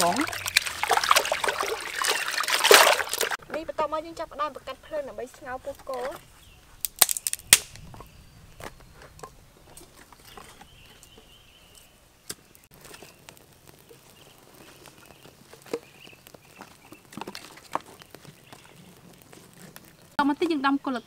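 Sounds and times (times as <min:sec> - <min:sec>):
firewood sticks knocking and scraping: 0:05.1 - 0:20.7.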